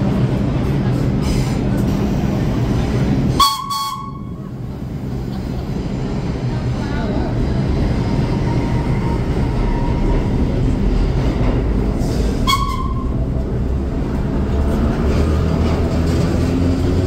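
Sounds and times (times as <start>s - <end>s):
subway train rumbling: 0.0s - 17.0s.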